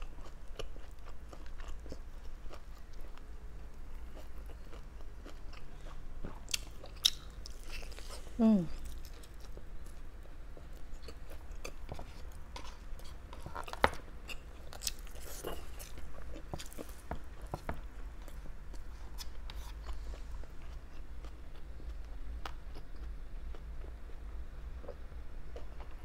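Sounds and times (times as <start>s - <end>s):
person chewing food: 0.0s - 24.0s
food crunching: 0.1s - 8.2s, 8.8s - 18.4s.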